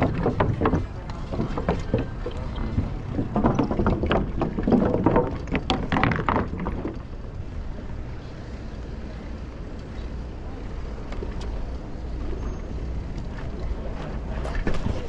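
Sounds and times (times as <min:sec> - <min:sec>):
sharp clattering knocks: 0:00.0 - 0:07.0
wind and road rumble: 0:00.0 - 0:15.0.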